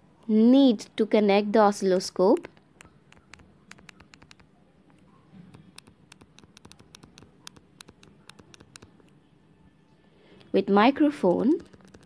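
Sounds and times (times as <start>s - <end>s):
stylus tapping on glass screen: 2.4s - 9.1s.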